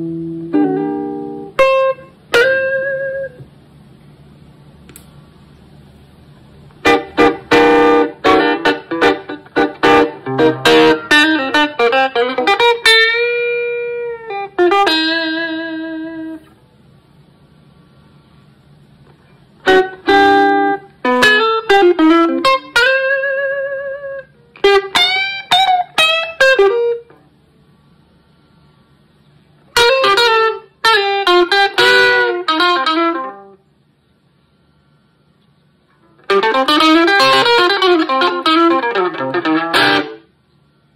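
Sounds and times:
electric guitar with fuzz and wah: 0:00.0 - 0:03.5, 0:06.7 - 0:16.6, 0:19.1 - 0:27.2, 0:29.6 - 0:33.6, 0:35.9 - 0:40.3
low amplifier hum: 0:00.0 - 0:40.9.

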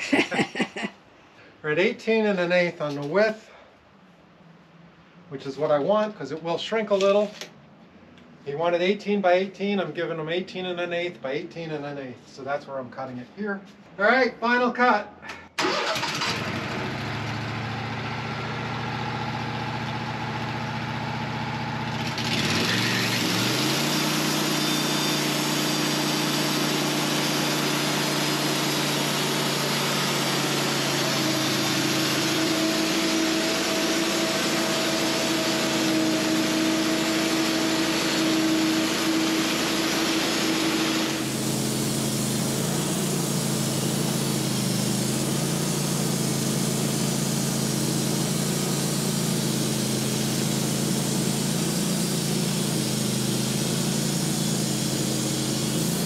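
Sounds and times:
sawmill engine running: 0:15.6 - 0:56.0
band saw cutting wood: 0:22.0 - 0:56.0.

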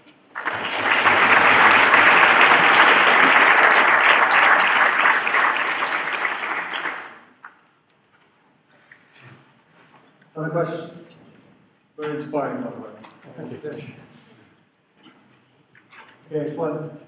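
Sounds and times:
audience applauding: 0:00.3 - 0:07.6.

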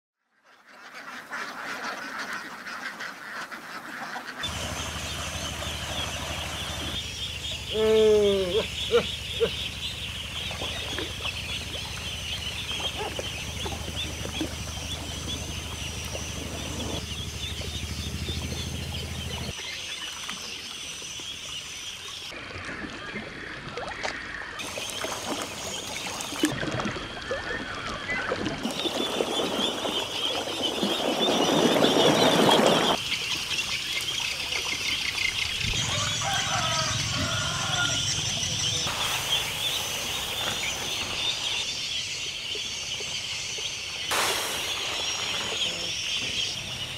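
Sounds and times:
ducklings peeping: 0:00.8 - 0:19.9, 0:28.7 - 0:46.9.

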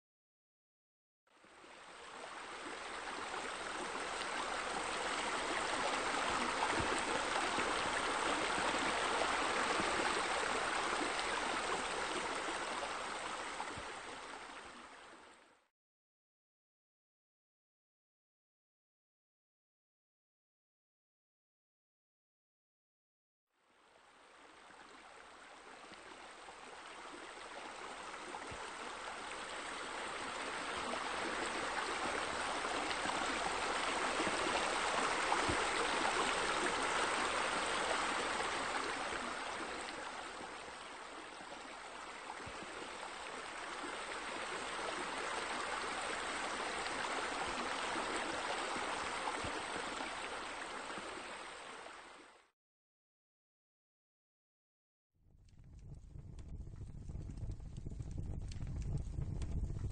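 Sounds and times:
water rushing: 0:01.4 - 0:15.4, 0:23.9 - 0:52.3.

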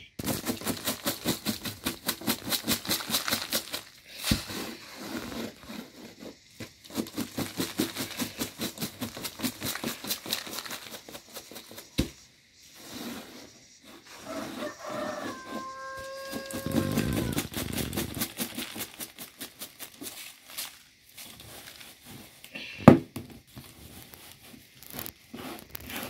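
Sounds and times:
grits spilling onto plastic tarp: 0:00.2 - 0:11.6, 0:14.6 - 0:22.8
grits rattling in sifting tray: 0:00.2 - 0:22.6, 0:23.4 - 0:26.0.

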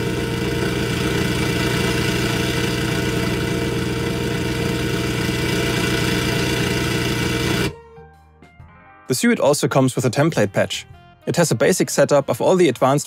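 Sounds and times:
synthesized engine running: 0:00.0 - 0:07.7.

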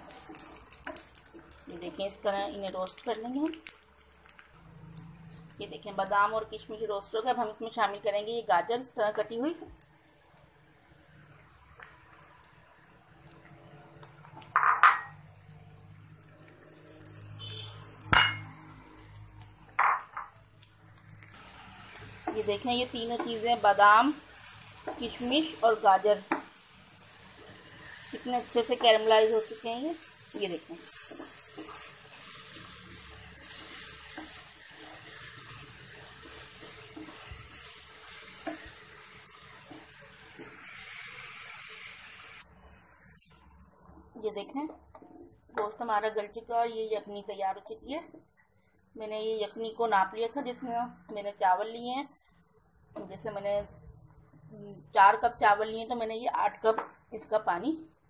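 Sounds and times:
food frying in oil: 0:00.0 - 0:58.0
spatula scraping and tapping pan: 0:22.0 - 0:22.5, 0:24.8 - 0:25.2, 0:30.7 - 0:38.8, 0:39.4 - 0:40.6.

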